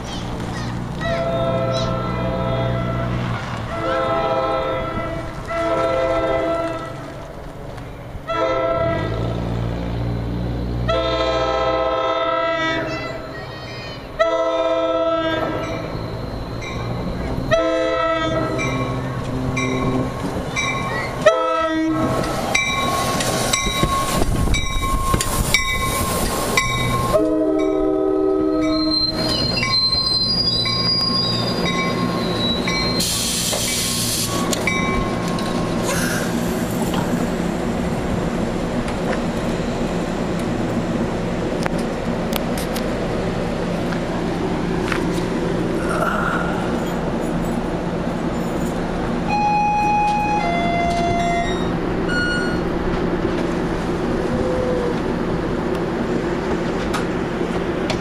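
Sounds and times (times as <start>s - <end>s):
train horn blasts: 1.2s - 7.0s, 8.3s - 9.4s, 10.8s - 12.9s, 14.2s - 15.6s, 17.4s - 20.1s, 21.2s - 22.1s, 27.0s - 29.0s
thin squealing brakes: 15.6s - 17.5s, 28.5s - 34.8s, 49.9s - 52.7s
train wheel clatter: 22.0s - 27.9s, 55.7s - 58.0s.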